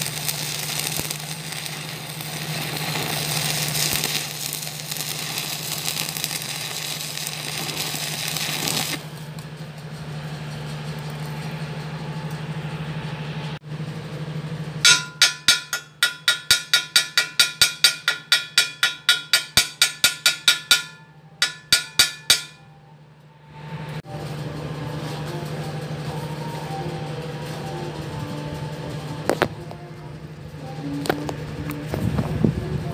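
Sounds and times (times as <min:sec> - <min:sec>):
electric arc welding crackle: 0:00.0 - 0:09.3
steady hum: 0:00.0 - 0:32.9
ringing metal strikes on steel pipe: 0:14.8 - 0:23.0.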